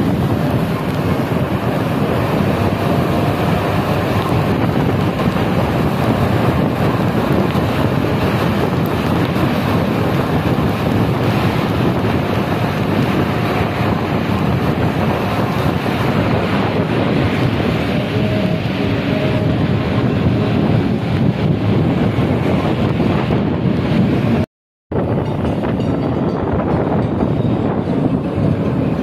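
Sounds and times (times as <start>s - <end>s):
heavy rain hissing: 0.0s - 20.9s
road noise: 0.0s - 29.0s
wind rushing on microphone: 0.0s - 29.0s.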